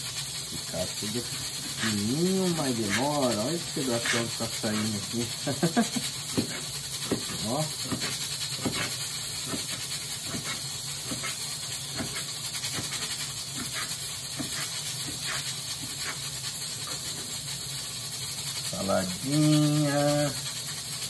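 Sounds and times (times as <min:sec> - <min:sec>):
constant hiss: 0:00.0 - 0:21.0
knife cutting on cutting board: 0:06.4 - 0:11.4, 0:12.0 - 0:16.2.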